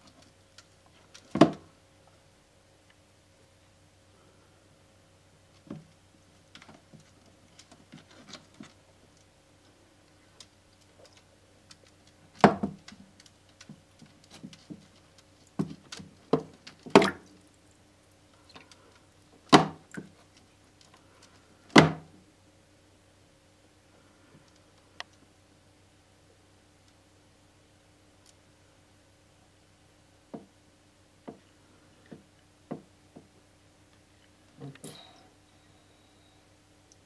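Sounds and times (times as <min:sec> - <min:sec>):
faint steady hum: 0:00.0 - 0:37.0.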